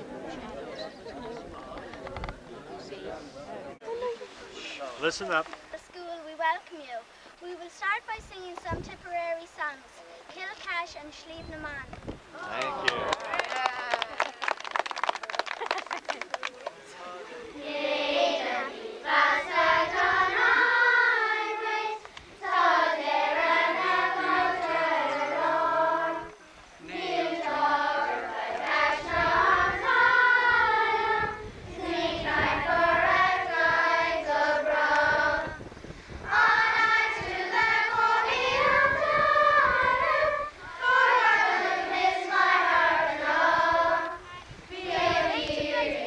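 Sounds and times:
children's choir singing: 17.5 - 35.6, 36.2 - 46.0.

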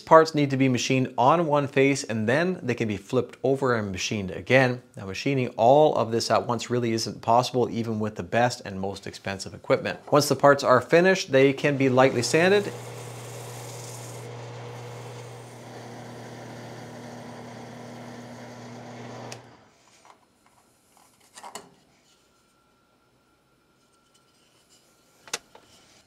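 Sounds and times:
sandpaper rubbing spinning wood: 11.6 - 15.6
wood lathe humming: 11.6 - 19.7.

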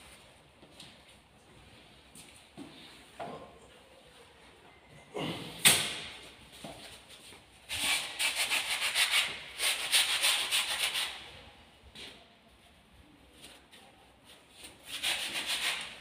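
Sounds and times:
scratchy rubbing on hard surface: 14.8 - 16.0.

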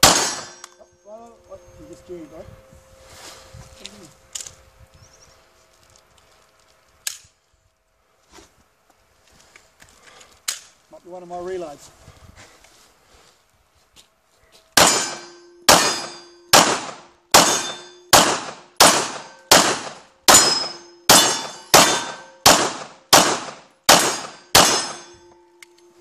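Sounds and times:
pistol shots: 0.0 - 0.7, 14.8 - 25.1
ringing tone: 24.9 - 26.0.

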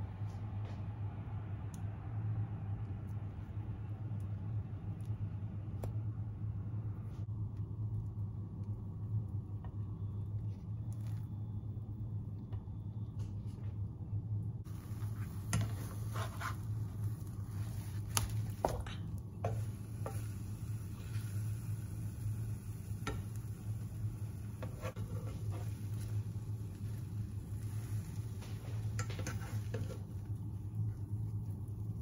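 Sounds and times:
low hum: 0.0 - 32.0
egg sizzling in frying pan: 14.7 - 32.0
spatula scraping pan: 14.8 - 17.4, 24.3 - 26.4, 27.5 - 30.2.

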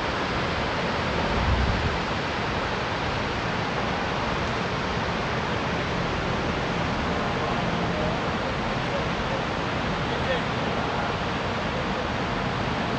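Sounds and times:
river rapids roaring: 0.0 - 12.9.

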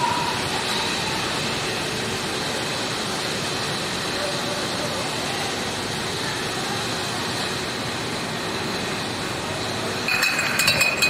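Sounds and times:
conveyor machinery hum: 0.0 - 11.0
steady high whine: 0.0 - 11.0
glass bottles clinking: 10.0 - 11.0.

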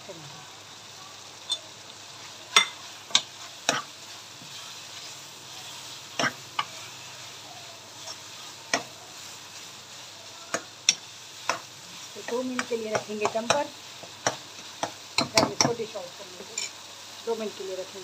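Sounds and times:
minced meat sizzling in a pan: 0.0 - 18.0
spoon knocking against pan: 8.7 - 8.9, 10.5 - 15.9.

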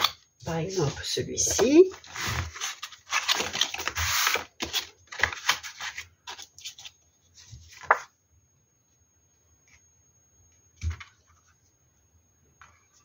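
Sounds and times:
paper rustling and sliding: 1.9 - 8.1.

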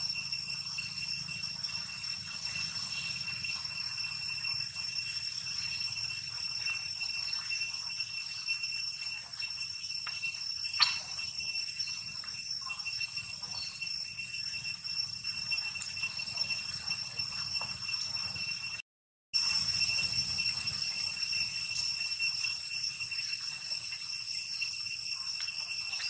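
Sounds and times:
high-pitched drone: 0.0 - 18.5.

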